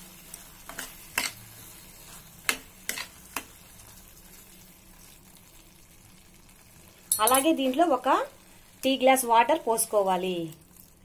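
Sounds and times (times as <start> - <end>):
soft sizzle: 0.0 - 11.0
metal spoon clinking against pan: 7.1 - 7.6.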